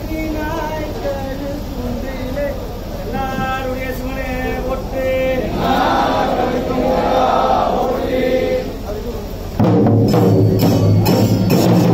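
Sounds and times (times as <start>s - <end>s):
crowd hubbub: 0.0s - 11.9s
crowd chanting: 4.3s - 9.0s.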